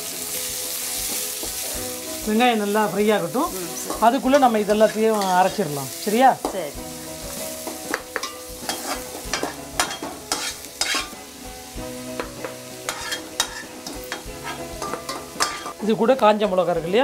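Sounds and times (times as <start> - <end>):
onions sizzling in oil: 0.0 - 17.0
metal spatula scraping pans: 7.6 - 11.2, 12.2 - 17.0.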